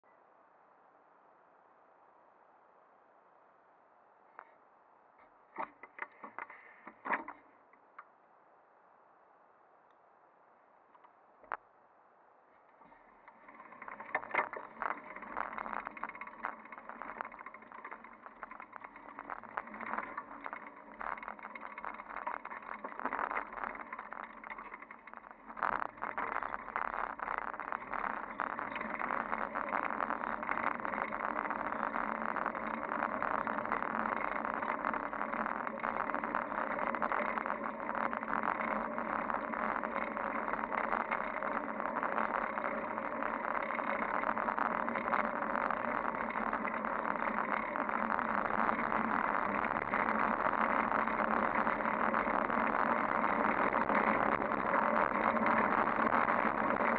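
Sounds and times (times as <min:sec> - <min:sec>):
bicycle rattles and knocks: 0:05.5 - 0:07.5, 0:12.7 - 0:56.9
bicycle tyres rolling on pavement: 0:12.7 - 0:56.9.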